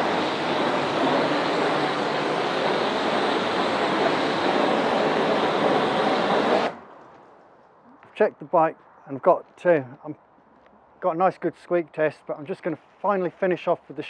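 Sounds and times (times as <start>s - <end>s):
pressure washer spraying: 0.0s - 6.8s.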